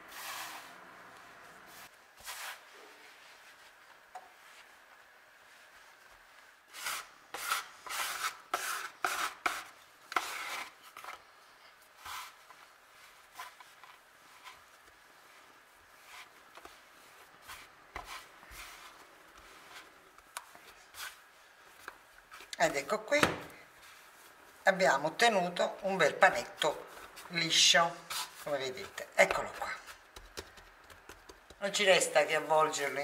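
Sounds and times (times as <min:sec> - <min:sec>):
hands kneading dough: 0:01.4 - 0:33.0
scraper scraping dough on wood: 0:06.7 - 0:11.2, 0:17.4 - 0:20.0.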